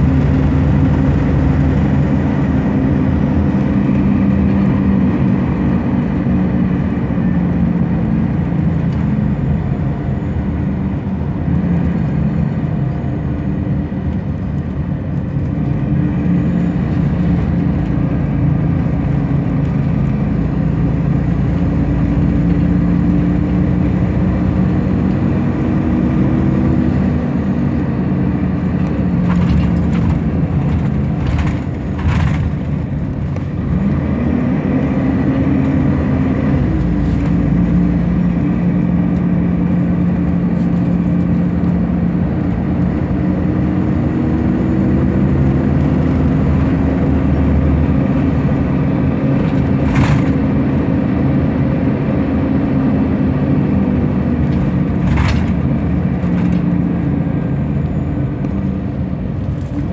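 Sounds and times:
bus diesel engine running: 0.0s - 59.9s
tyre and road noise: 0.0s - 59.9s.

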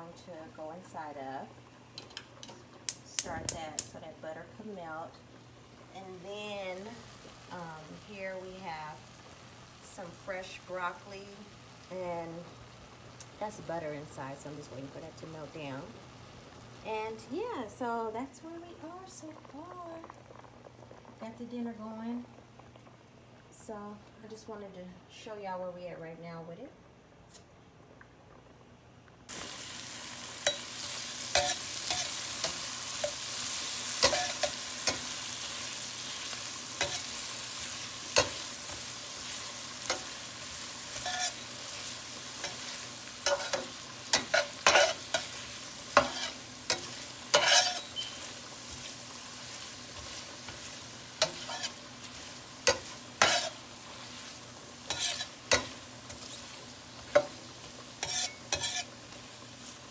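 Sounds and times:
onions sizzling in butter: 0.0s - 24.6s, 29.3s - 59.9s
metal spatula scraping pan: 40.9s - 41.5s, 42.4s - 48.9s, 50.0s - 53.6s, 54.8s - 56.5s, 58.0s - 59.0s.

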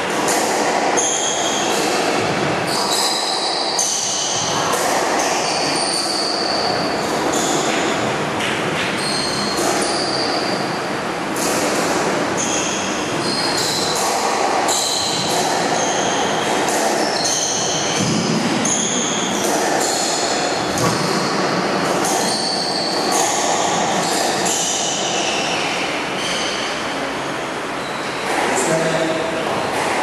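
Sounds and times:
squash ball knocking off racquets: 13.2s - 25.0s, 29.5s - 30.0s.

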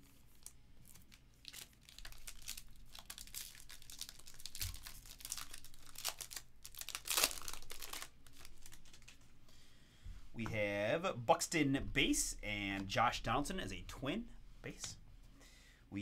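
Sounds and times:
foil wrapper tearing and crinkling: 0.3s - 9.2s.

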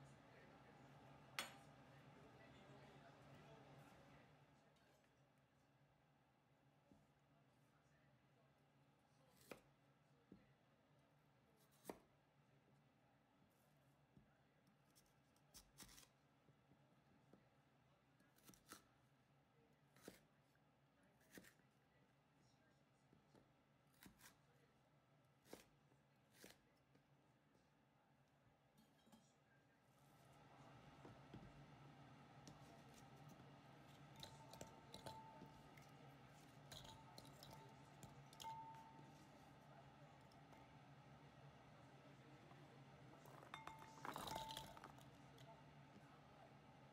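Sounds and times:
vegetable chunks dropped into glass bowl: 43.2s - 45.1s.

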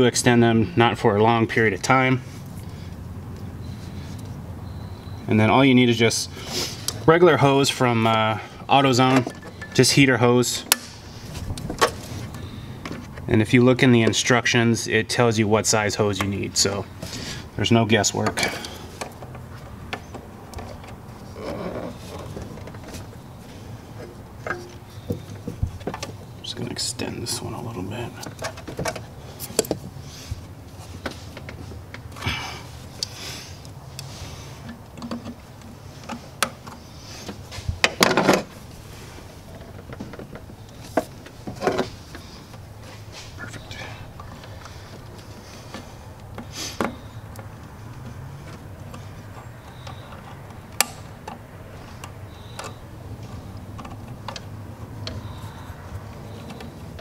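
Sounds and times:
short breaths: 6.3s - 7.0s, 17.0s - 17.6s, 32.2s - 34.7s, 42.0s - 47.0s
hands clicking and tapping hose: 44.2s - 57.0s.

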